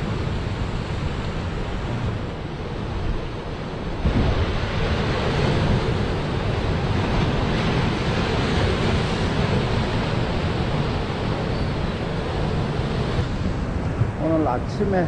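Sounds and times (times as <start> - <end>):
wind rumbling on microphone: 0.0 - 15.0
surf breaking over rocks: 3.8 - 11.5.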